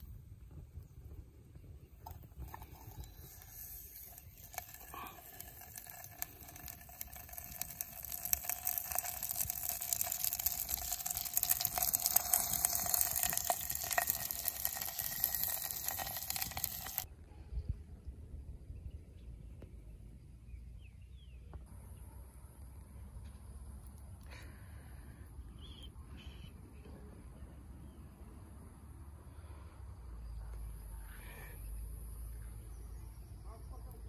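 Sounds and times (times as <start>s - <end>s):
twig fire crackling: 0.0s - 17.1s.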